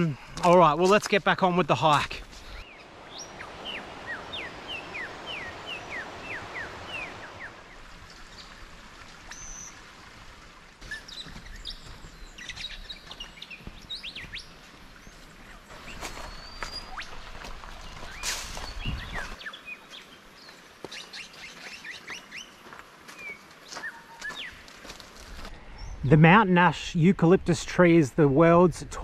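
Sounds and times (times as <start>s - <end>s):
birds chirping: 0.0s - 10.0s, 10.8s - 26.8s.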